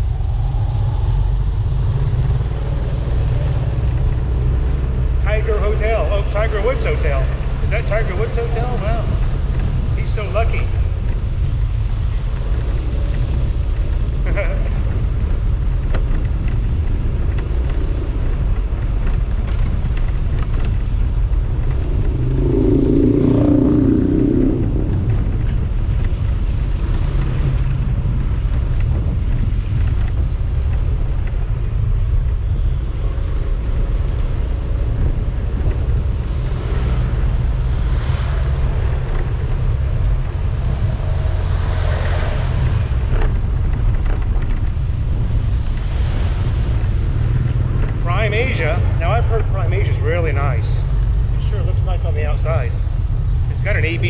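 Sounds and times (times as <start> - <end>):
wind over microphone: 0.0 - 54.0
louder rising sound: 21.2 - 26.0.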